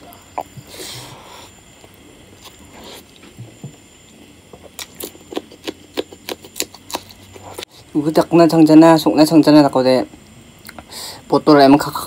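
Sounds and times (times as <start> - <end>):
crunching chili being chewed: 1.7 - 7.9.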